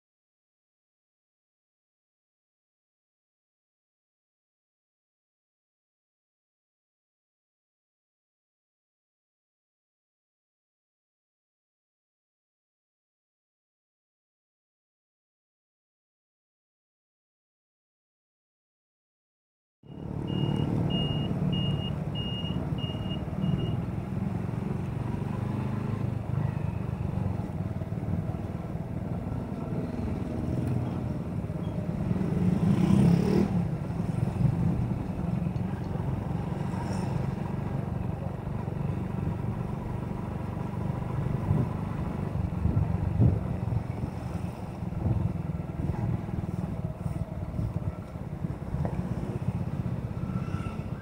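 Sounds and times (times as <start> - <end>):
road and wind noise: 19.8 - 51.0
short high beeps: 19.9 - 23.8.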